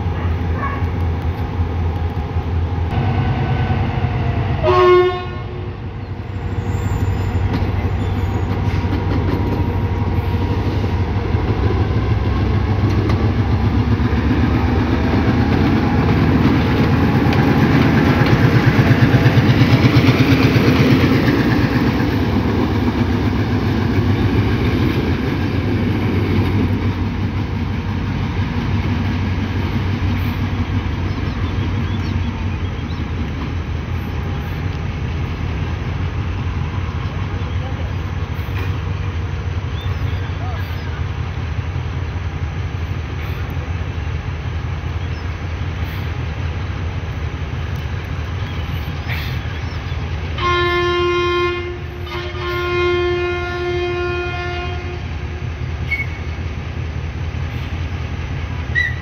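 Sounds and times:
diesel locomotive engine drone: 0:00.0 - 0:59.0
locomotive horn toot: 0:04.6 - 0:08.9, 0:50.4 - 0:56.3.

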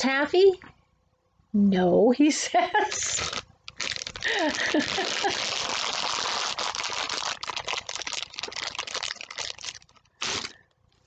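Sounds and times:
plastic packing material crackling: 0:02.9 - 0:10.6.

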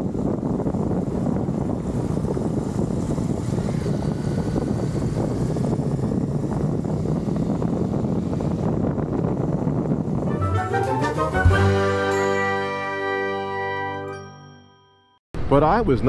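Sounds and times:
motorcycle engine running: 0:00.0 - 0:10.3.

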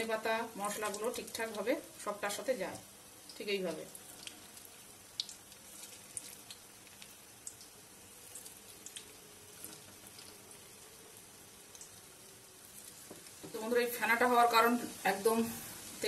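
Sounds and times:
food deep-frying in oil: 0:00.0 - 0:16.0
small crackling pops: 0:03.2 - 0:10.6, 0:11.6 - 0:13.6.

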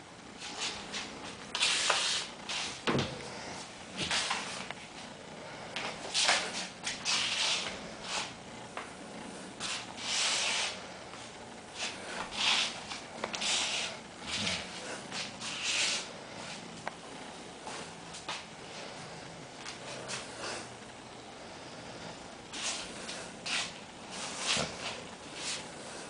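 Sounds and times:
rubbing and scuffing: 0:00.4 - 0:02.8, 0:04.0 - 0:05.0, 0:05.8 - 0:08.4, 0:09.6 - 0:16.7, 0:22.5 - 0:25.7.

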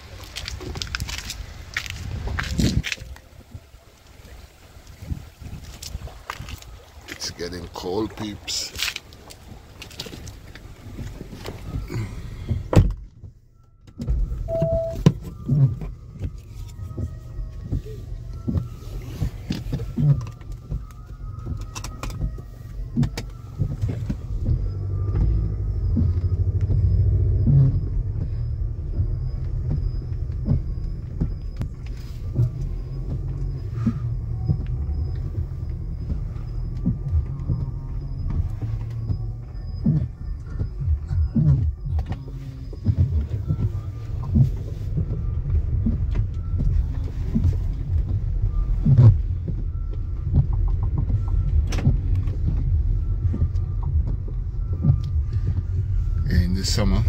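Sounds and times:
car rumble inside cabin: 0:00.0 - 0:57.0
brief beep: 0:14.4 - 0:15.1.

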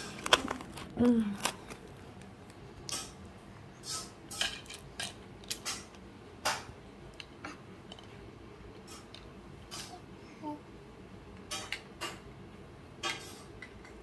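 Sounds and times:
plastic toys clattering: 0:00.0 - 0:02.0, 0:04.3 - 0:05.9.

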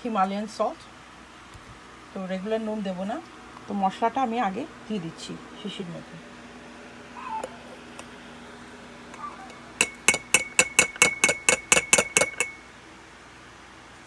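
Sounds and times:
steel bowl tapping glass jar: 0:09.8 - 0:12.6.

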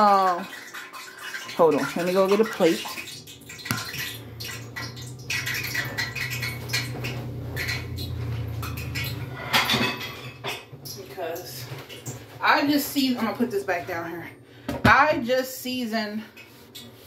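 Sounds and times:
dishes clattering: 0:00.5 - 0:11.1.

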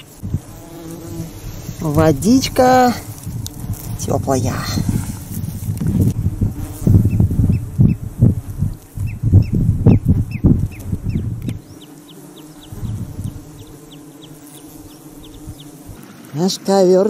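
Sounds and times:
wind buffeting microphone: 0:00.0 - 0:11.8, 0:12.4 - 0:16.0
small bird chirping: 0:08.6 - 0:15.8.

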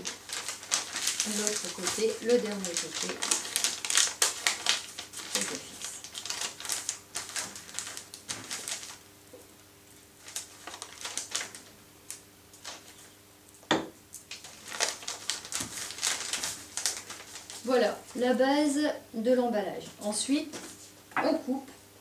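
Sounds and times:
paper crinkling: 0:00.0 - 0:09.1, 0:10.1 - 0:13.2, 0:14.2 - 0:18.4.

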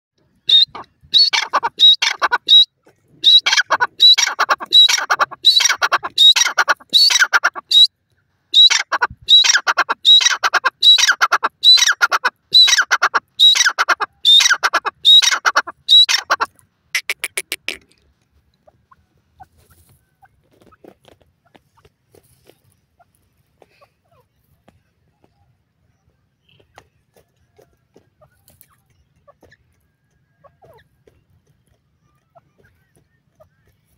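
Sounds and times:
bird calling rasping notes: 0:00.3 - 0:07.9, 0:08.5 - 0:18.0.

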